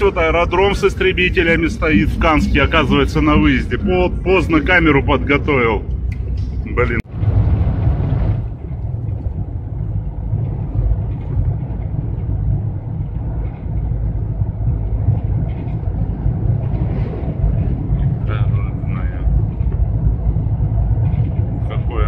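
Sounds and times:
tyre road noise: 0.0 - 22.0
van engine drone: 0.0 - 22.0.

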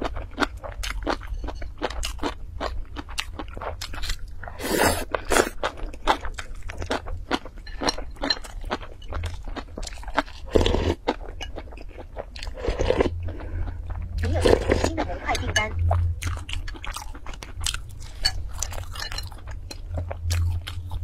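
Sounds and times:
close-miked chewing: 0.0 - 21.0.

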